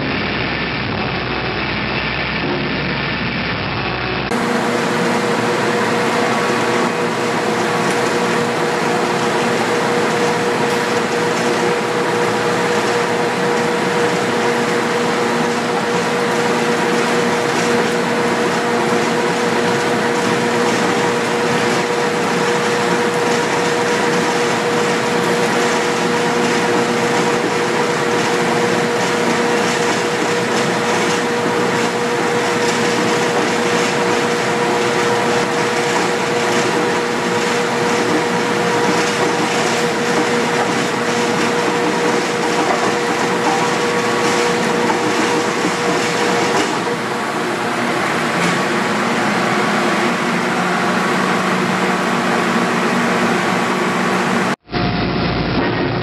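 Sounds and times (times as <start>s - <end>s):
rolling mill mechanical drone: 0.0s - 56.0s.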